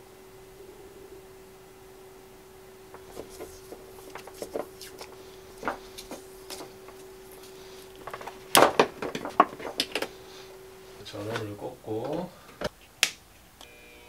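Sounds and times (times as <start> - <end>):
faint steady hum: 0.0 - 14.0
hands handling electrical cord: 2.9 - 10.2.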